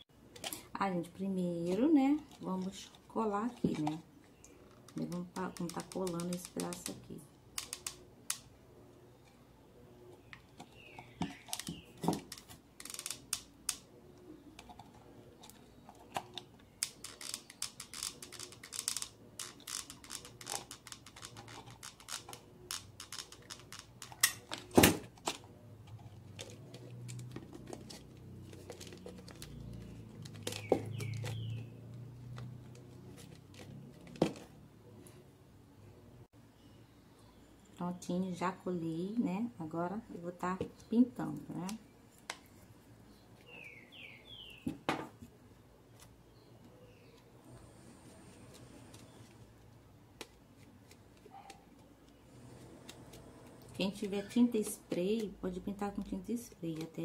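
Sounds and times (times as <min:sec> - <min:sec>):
plastic crackling and clicking: 0:01.6 - 0:08.5, 0:10.3 - 0:13.9, 0:14.5 - 0:34.5, 0:52.8 - 0:57.0.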